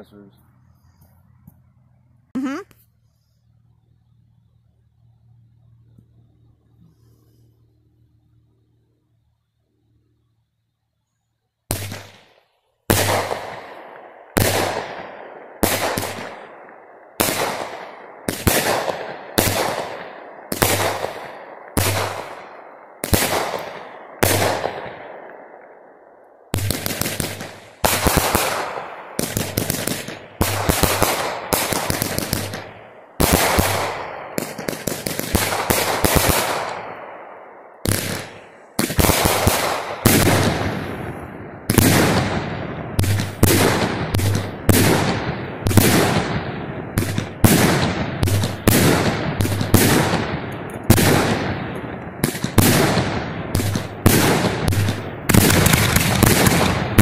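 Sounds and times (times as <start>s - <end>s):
fireworks exploding and crackling: 11.7s - 57.0s.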